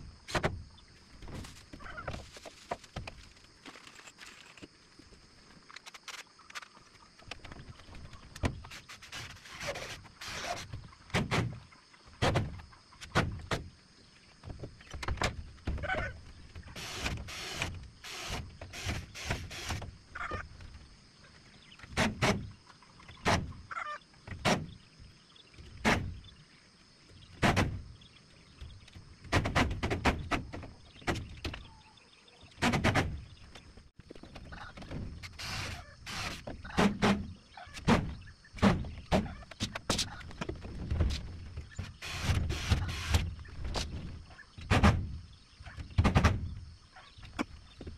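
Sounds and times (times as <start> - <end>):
timber knocking and scraping: 1.2 - 4.7, 6.0 - 13.7, 21.7 - 23.6, 27.3 - 31.7, 32.6 - 46.6.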